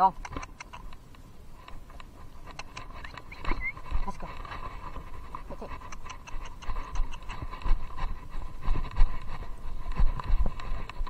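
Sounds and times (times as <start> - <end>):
horse hooves thudding on grass: 0.4 - 11.0.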